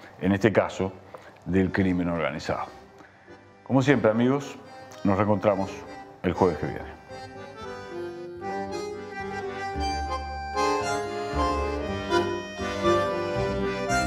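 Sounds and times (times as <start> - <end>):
instrumental theme music: 2.2 - 14.0
bass line: 7.0 - 14.0.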